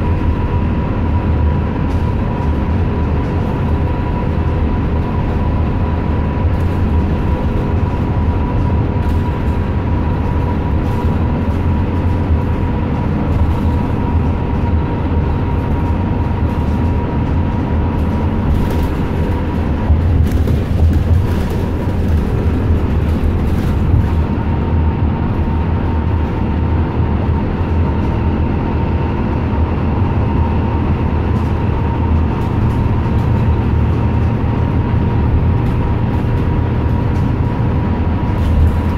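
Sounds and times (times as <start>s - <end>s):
bus engine and road rumble: 0.0s - 38.9s.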